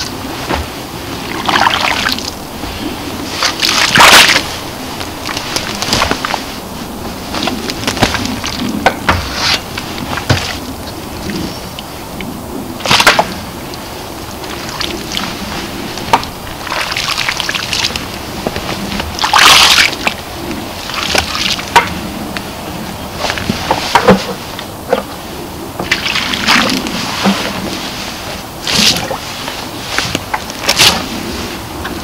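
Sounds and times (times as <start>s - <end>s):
oil sloshing and splashing: 0.0s - 4.6s, 14.5s - 18.1s, 19.0s - 20.2s, 20.9s - 21.9s, 25.8s - 31.1s.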